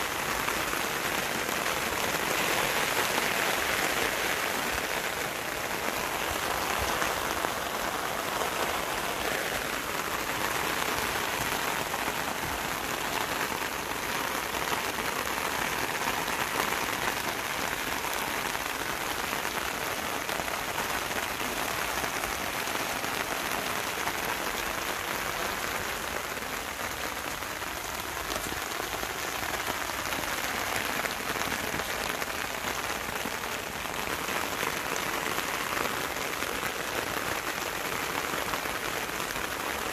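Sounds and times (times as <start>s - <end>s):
rain falling on leaves: 0.0s - 39.9s.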